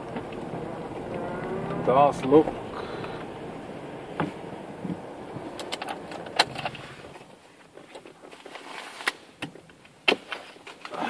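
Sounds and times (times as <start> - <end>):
clicks and rattles inside car: 0.0 - 8.4
car engine and road rumble: 0.0 - 10.1.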